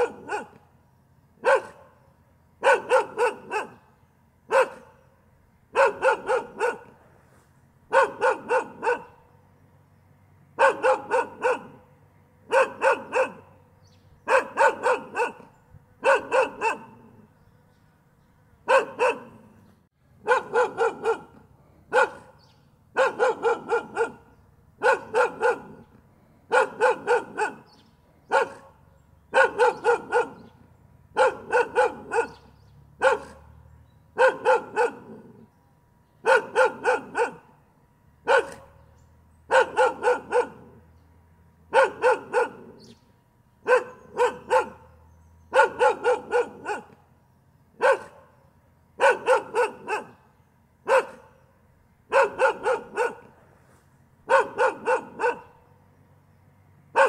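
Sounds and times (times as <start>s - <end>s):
dog barking: 0.0s - 0.6s, 1.4s - 2.0s, 2.6s - 3.9s, 4.5s - 5.1s, 5.7s - 7.0s, 7.9s - 9.3s, 10.6s - 11.9s, 12.5s - 13.6s, 14.2s - 17.3s, 18.6s - 19.6s, 20.2s - 33.6s, 34.2s - 35.5s, 36.2s - 37.6s, 38.2s - 38.8s, 39.5s - 40.8s, 41.7s - 43.0s, 43.6s - 47.0s, 47.8s - 48.4s, 49.0s - 51.5s, 52.1s - 53.4s, 54.2s - 55.6s.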